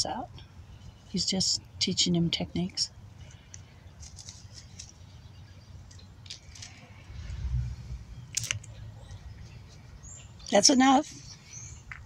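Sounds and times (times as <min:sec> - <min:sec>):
dry leaves crackling and rustling: 0:03.4 - 0:05.1
low rumble: 0:06.8 - 0:09.5.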